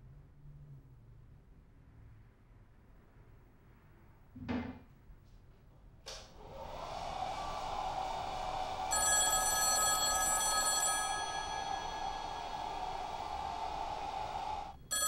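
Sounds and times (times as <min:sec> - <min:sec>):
high ringing tones: 0:08.8 - 0:15.0
telephone ringing: 0:08.9 - 0:13.6.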